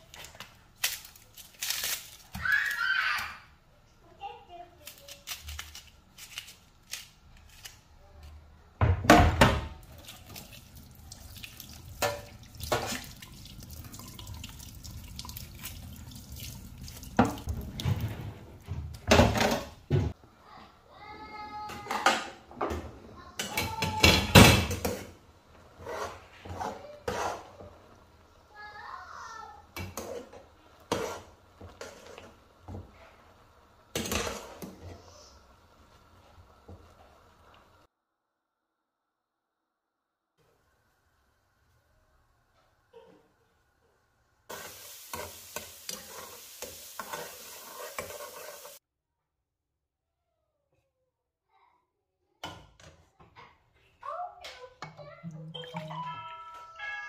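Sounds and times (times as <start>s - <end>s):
water splashing: 9.9s - 18.1s
metal spoon scraping a pot: 25.8s - 27.6s, 30.0s - 32.3s, 44.6s - 48.8s.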